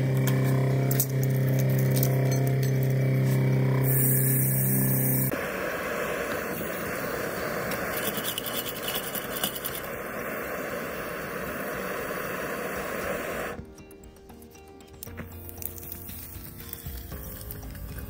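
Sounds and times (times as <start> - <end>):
blowtorch flame hissing: 3.2 - 13.6.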